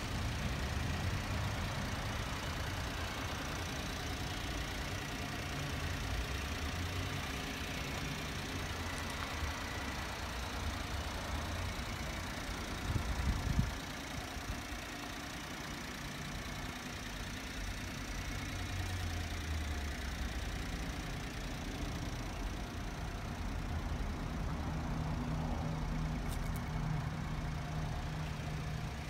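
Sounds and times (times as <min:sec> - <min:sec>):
small truck engine idling: 0:00.0 - 0:29.0.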